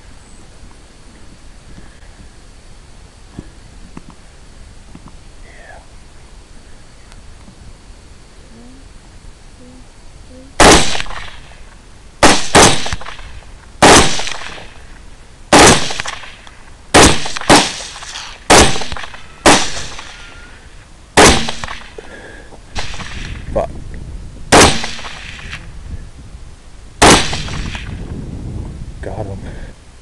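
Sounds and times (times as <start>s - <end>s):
rifle shots cracking: 10.6s - 11.6s, 12.2s - 14.8s, 15.5s - 20.3s, 21.2s - 22.0s, 22.7s - 23.5s, 24.5s - 25.6s, 27.0s - 28.0s.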